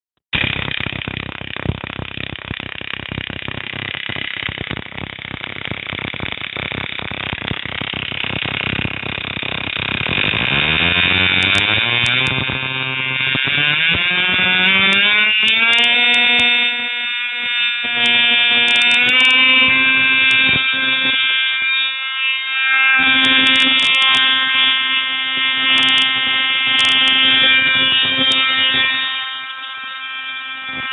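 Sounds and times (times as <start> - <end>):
ignition sparks snapping: 0.4 - 21.8
high-pitched spark buzz: 0.4 - 30.9.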